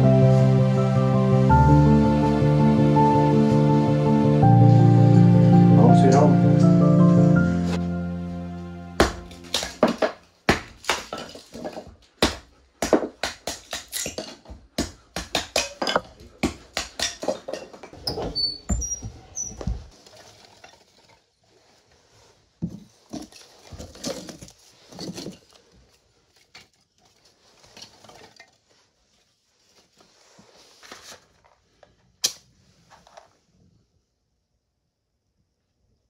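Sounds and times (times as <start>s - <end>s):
kindling sticks clattering: 9.0s - 18.0s
hinges squeaking: 17.8s - 19.9s.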